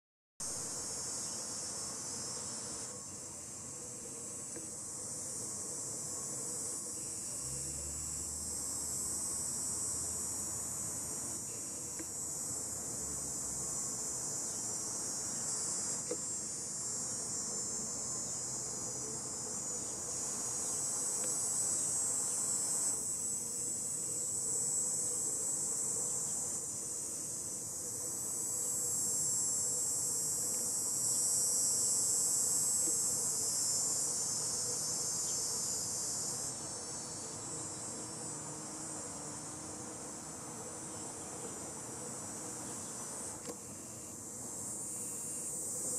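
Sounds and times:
cicadas singing: 0.4s - 45.9s.

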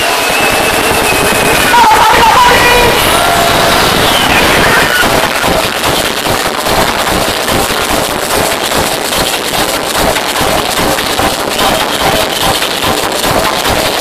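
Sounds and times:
loud dance music: 0.0s - 14.0s.

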